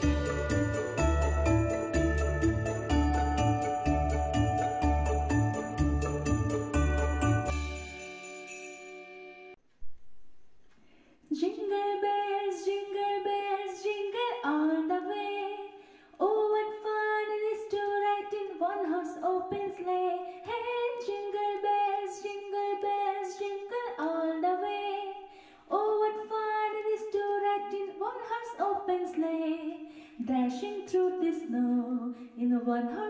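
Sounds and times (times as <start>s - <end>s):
woman singing unaccompanied: 11.3s - 33.0s.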